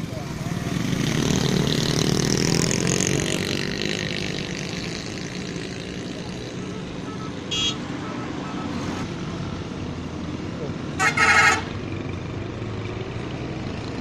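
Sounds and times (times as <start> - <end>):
motorcycle passing close: 0.0 - 7.0, 8.9 - 14.0
traffic noise: 0.0 - 14.0
horn toot: 11.0 - 11.8.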